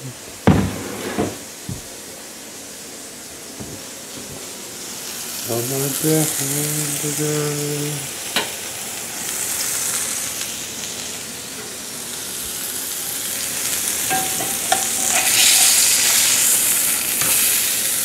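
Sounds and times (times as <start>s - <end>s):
patty sizzling in skillet: 0.4s - 18.0s
spatula scraping: 0.5s - 1.5s.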